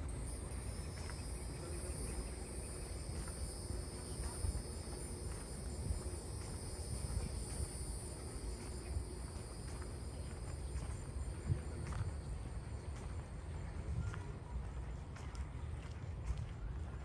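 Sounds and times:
insects trilling: 0:00.0 - 0:13.4.

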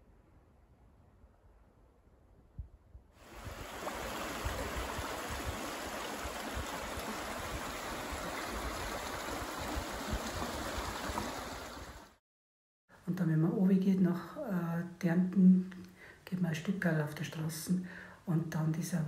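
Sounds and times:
stream babbling over stones: 0:03.2 - 0:12.1.

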